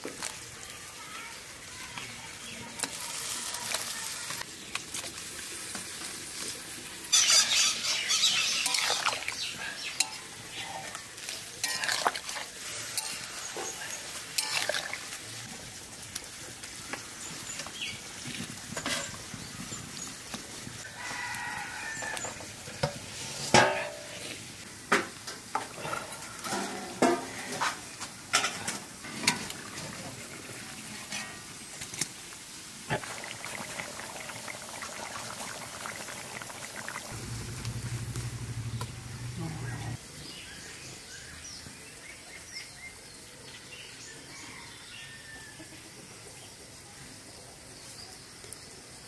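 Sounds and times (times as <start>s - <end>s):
curry sizzling in a pan: 0.0s - 41.4s
utensil clinking on metal pan: 14.4s - 14.8s
rooster crowing: 20.8s - 22.4s, 44.2s - 45.8s.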